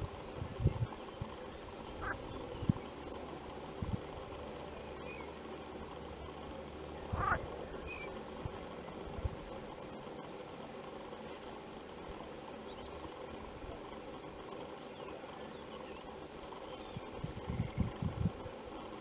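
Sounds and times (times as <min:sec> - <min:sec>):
frogs calling: 0:01.0 - 0:03.0, 0:06.4 - 0:08.2
faint high bird chirps: 0:01.5 - 0:02.9.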